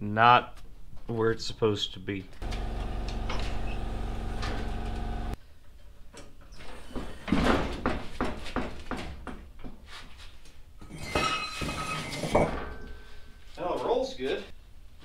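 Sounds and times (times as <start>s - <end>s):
steady mechanical hum: 2.4s - 5.4s.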